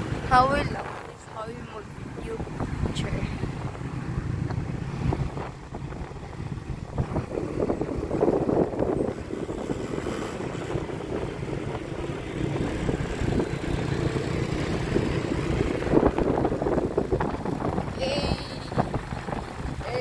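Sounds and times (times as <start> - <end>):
vehicle engine and road noise: 0.0 - 20.0.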